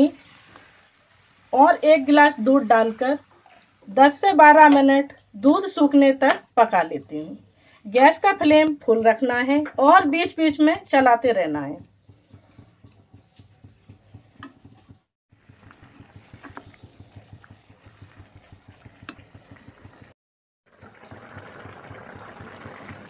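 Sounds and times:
milk boiling with bubbling hiss: 0.0 - 6.4, 10.2 - 23.0.

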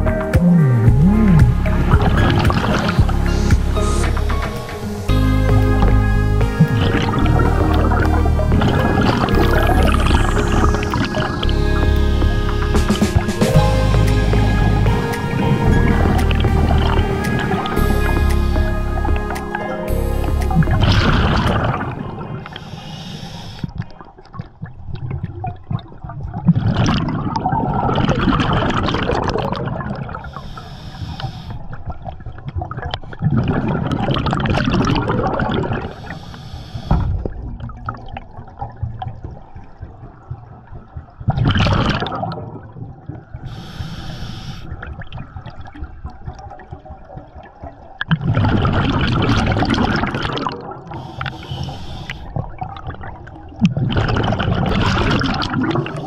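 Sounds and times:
gurgling exhaled bubbles: 0.0 - 56.0
hissing regulator inhales: 22.5 - 23.7, 30.2 - 31.6, 35.9 - 37.1, 43.5 - 44.7, 50.9 - 52.4.

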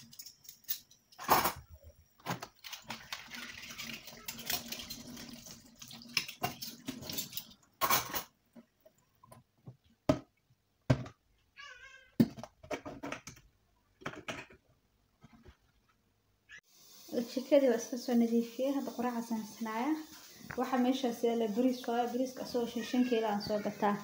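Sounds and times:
tap water running into sink: 2.6 - 7.7.

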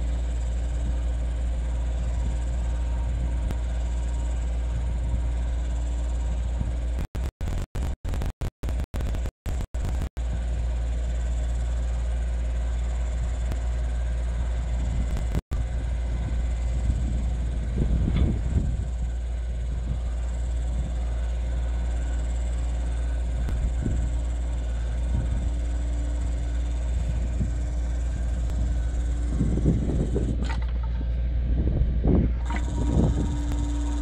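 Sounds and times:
excavator diesel engine running: 0.0 - 34.0
earth auger boring into mud: 23.4 - 31.3, 32.0 - 34.0.

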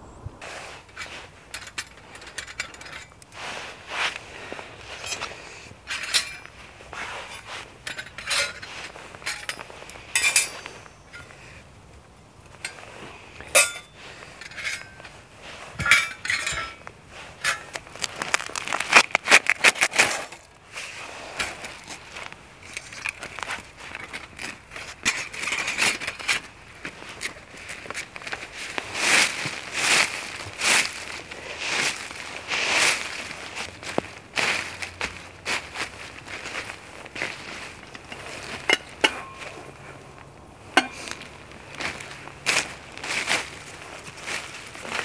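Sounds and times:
thin metal plates clinking: 0.9 - 3.3, 4.9 - 6.6, 7.2 - 11.4, 12.6 - 15.2, 15.8 - 18.0, 37.6 - 39.8, 40.7 - 41.3.

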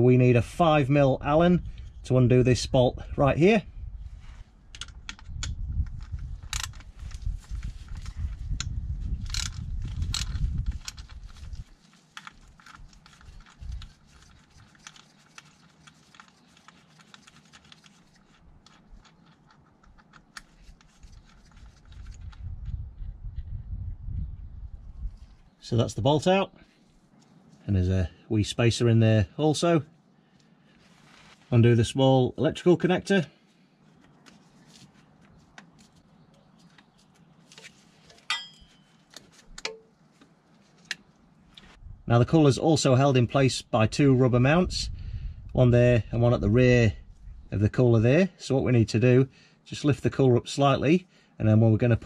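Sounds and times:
sharp ringing click: 38.3 - 39.0.

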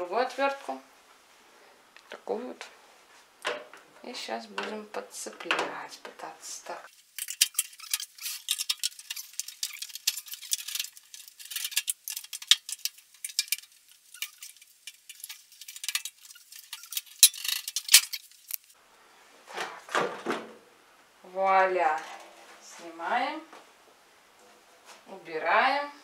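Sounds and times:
screwdriver scraping sheet metal: 7.2 - 18.7.

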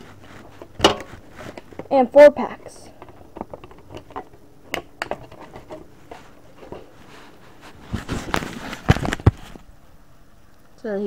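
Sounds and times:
plastic packaging clicks and rustles: 7.7 - 9.7.

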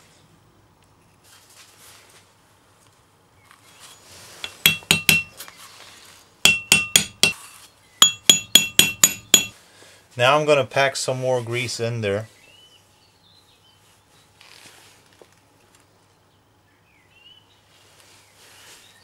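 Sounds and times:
hammer ringing on metal: 4.4 - 5.4, 6.5 - 7.4, 8.0 - 9.6.

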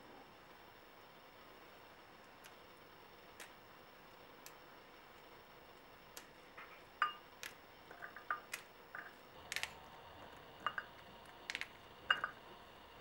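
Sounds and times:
arils dropping into glass bowl: 7.0 - 9.7, 10.6 - 12.4.

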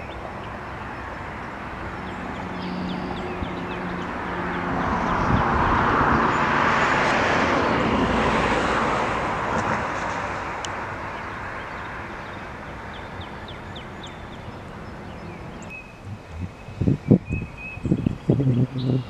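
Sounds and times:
vehicle passing: 0.0 - 19.0
bird chirps: 11.2 - 19.0
short low sounds: 16.0 - 17.4.

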